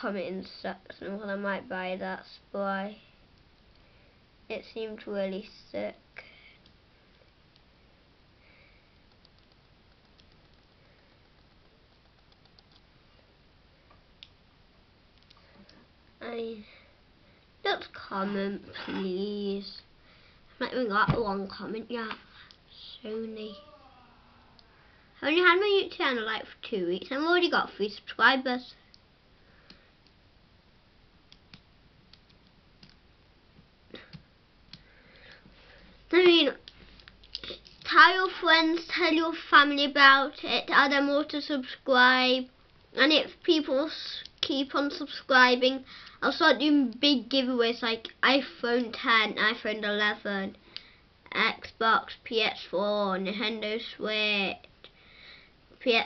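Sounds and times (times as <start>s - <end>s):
faint clicks: 15.1s - 15.8s.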